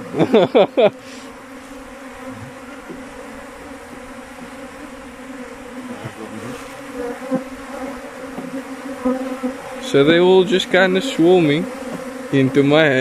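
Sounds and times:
bees buzzing: 0:00.0 - 0:13.0.

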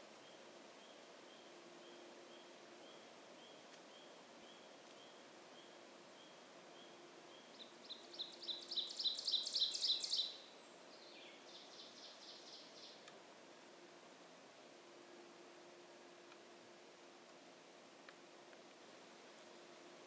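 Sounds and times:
ovenbird singing: 0:00.2 - 0:13.0.

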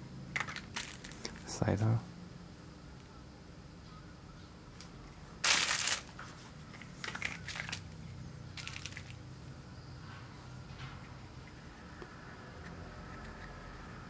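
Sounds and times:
plastic packaging crinkling: 0:00.4 - 0:01.5, 0:05.4 - 0:06.3, 0:07.0 - 0:08.0, 0:08.6 - 0:09.2.

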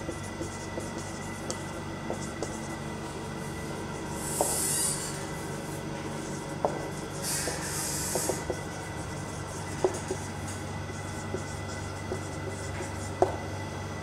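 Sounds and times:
faint steady hum: 0:00.0 - 0:14.0
marker pen squeaking on whiteboard: 0:04.2 - 0:05.1, 0:06.2 - 0:13.3.

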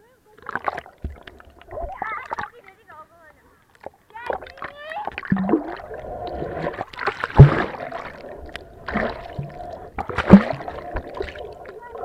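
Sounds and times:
underwater splashes and thumps: 0:00.4 - 0:02.6, 0:03.8 - 0:12.0
underwater gurgling and bubbling: 0:04.2 - 0:12.0.

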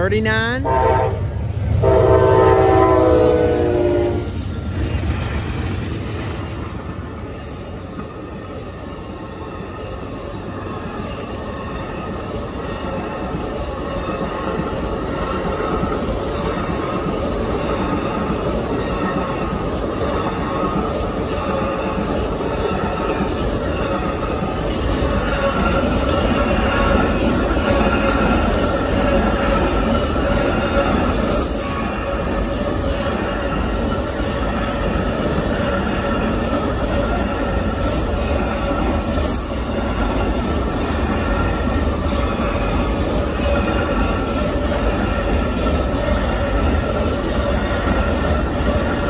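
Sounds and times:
train wheels on rails: 0:00.0 - 0:49.0
train horn: 0:00.6 - 0:04.4.

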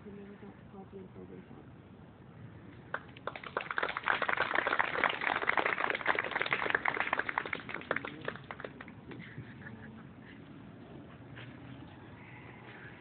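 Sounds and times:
crowd applauding: 0:02.9 - 0:09.2.

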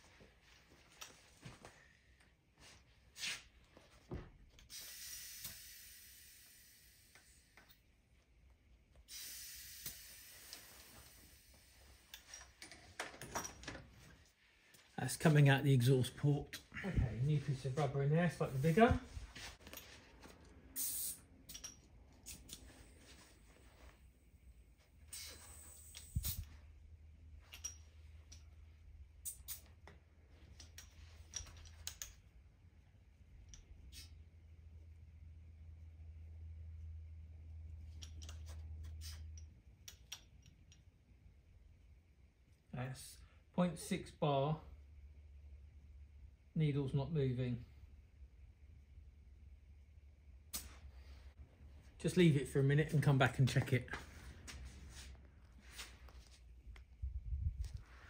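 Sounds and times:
air hissing from engine: 0:04.7 - 0:07.6, 0:09.1 - 0:12.1, 0:20.8 - 0:21.2
steady low hum: 0:05.7 - 0:31.4
light clicks and taps of fittings: 0:29.6 - 0:32.4, 0:37.8 - 0:41.0.

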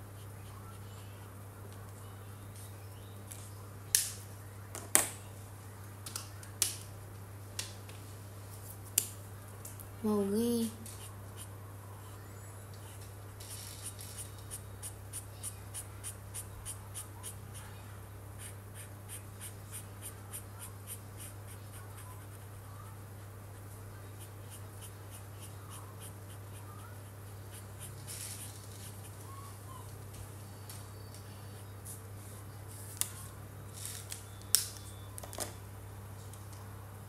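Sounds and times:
marker scratching on paper: 0:10.9 - 0:12.2, 0:12.8 - 0:17.7, 0:18.4 - 0:29.2.

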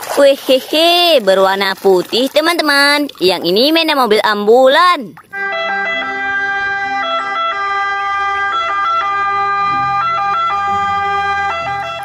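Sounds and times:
ambulance two-tone siren: 0:05.3 - 0:12.0
low vehicle rumble: 0:05.4 - 0:12.0.

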